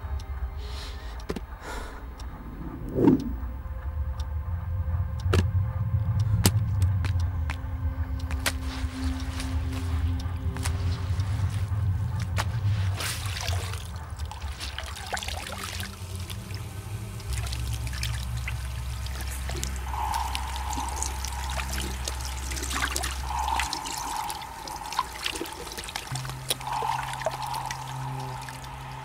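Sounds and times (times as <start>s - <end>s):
low background music: 0.0s - 29.0s
drips and splashes: 12.2s - 29.0s
water trickling from mop into bucket: 13.3s - 29.0s.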